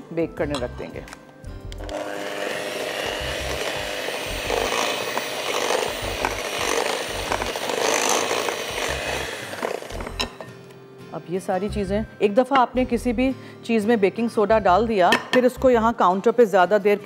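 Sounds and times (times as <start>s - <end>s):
electric hand mixer whisking batter: 1.8s - 10.3s.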